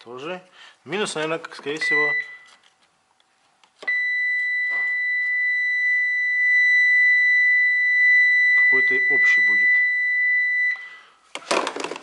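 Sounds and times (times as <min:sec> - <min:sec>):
high-pitched continuity beep: 0:03.9 - 0:11.0.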